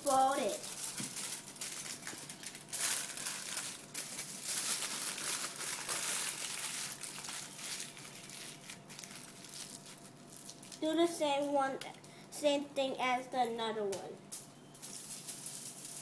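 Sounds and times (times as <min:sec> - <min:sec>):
aluminium foil crinkling: 0:00.0 - 0:12.2, 0:14.3 - 0:16.0.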